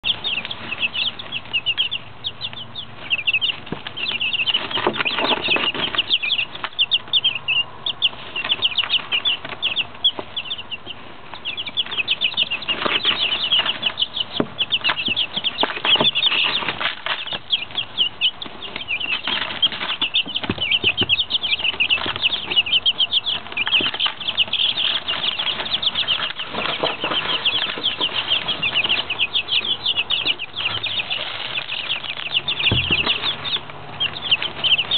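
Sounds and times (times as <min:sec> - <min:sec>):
chicks peeping: 0:00.0 - 0:34.9
scratching in wood shavings: 0:00.0 - 0:34.9.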